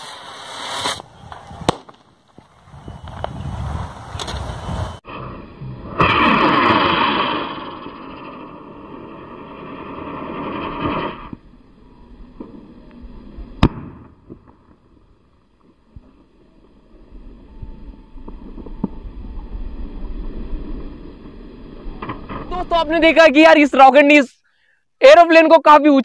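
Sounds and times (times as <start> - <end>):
firework bang: 0.0 - 2.5, 5.8 - 11.5, 13.6 - 16.1
firework rocket hissing: 0.0 - 5.1, 5.9 - 15.3.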